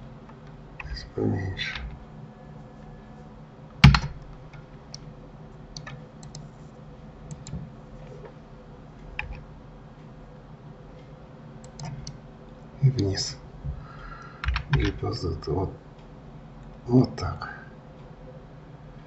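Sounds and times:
faint steady hum: 0:00.0 - 0:19.0
keyboard key presses: 0:03.8 - 0:04.2, 0:05.8 - 0:06.4
mouse clicks: 0:05.8 - 0:06.5, 0:11.6 - 0:12.2.

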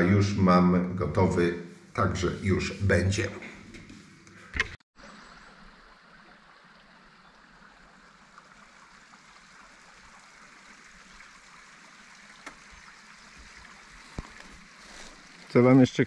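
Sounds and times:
stream trickling over stones: 0:05.0 - 0:16.0.

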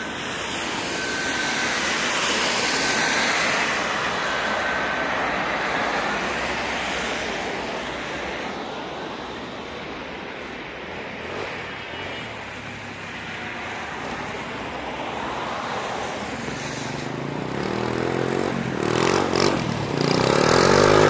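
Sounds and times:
road traffic hiss: 0:00.0 - 0:21.0
small motorcycle engine revving: 0:17.5 - 0:21.0.

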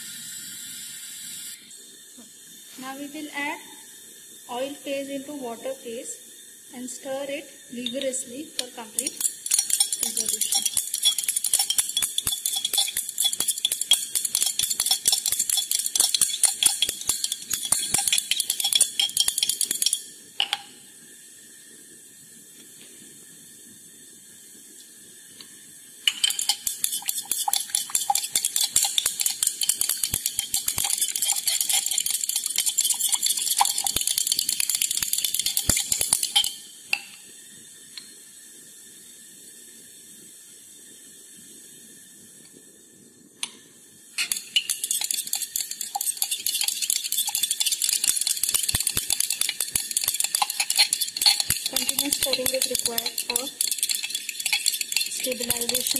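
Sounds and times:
stirring rod clinking glass dish: 0:07.8 - 0:20.7, 0:26.1 - 0:37.2, 0:44.2 - 0:55.9.

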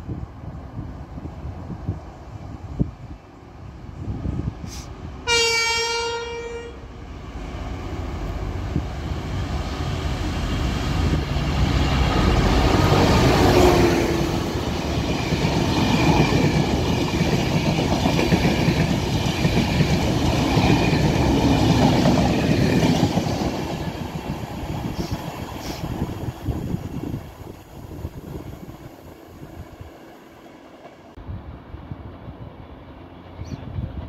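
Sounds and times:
diesel locomotive passing: 0:00.0 - 0:34.0
train coaches clattering past: 0:07.3 - 0:31.2.

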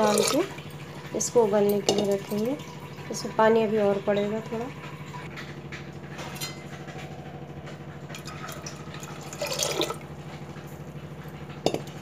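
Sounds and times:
water pouring into a pot: 0:00.0 - 0:04.5, 0:08.2 - 0:10.0.

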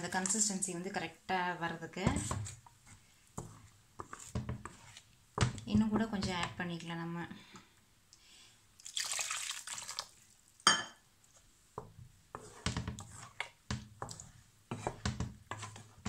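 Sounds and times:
wooden spatula stirring gravy: 0:02.0 - 0:06.6, 0:11.3 - 0:16.0
water poured into paste: 0:08.8 - 0:10.4.

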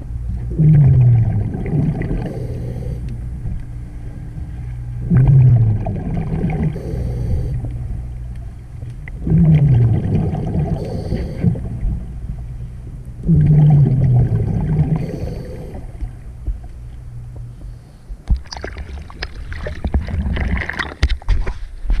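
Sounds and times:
underwater bubbles gurgling: 0:00.0 - 0:21.1
clicks and crackles: 0:07.6 - 0:09.2, 0:16.0 - 0:22.0.

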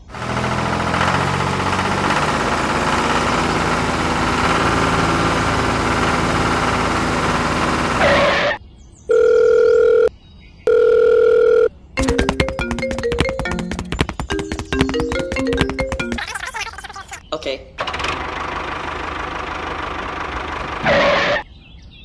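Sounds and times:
engine running: 0:00.0 - 0:08.6, 0:12.0 - 0:16.4, 0:17.8 - 0:21.4.

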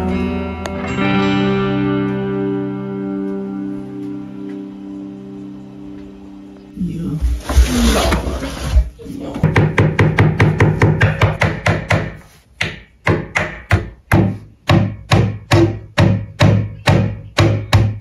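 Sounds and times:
background music of struck notes: 0:00.0 - 0:06.6.

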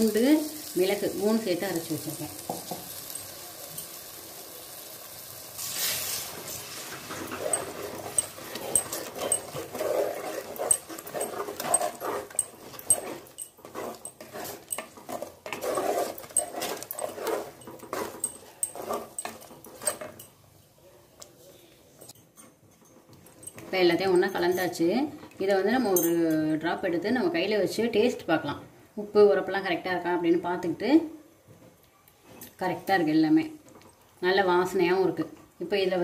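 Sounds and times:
wooden spatula stirring thick paste: 0:06.3 - 0:20.3.

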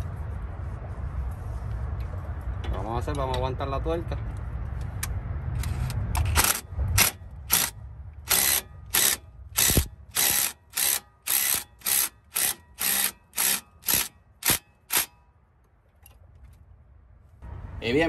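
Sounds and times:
impact driver bursts: 0:06.4 - 0:15.2.

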